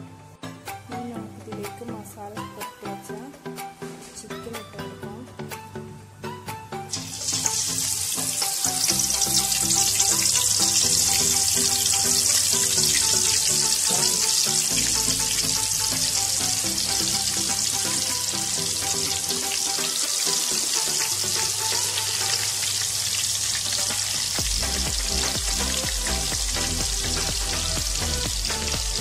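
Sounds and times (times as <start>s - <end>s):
chicken sizzling in hot oil: 6.9s - 29.0s.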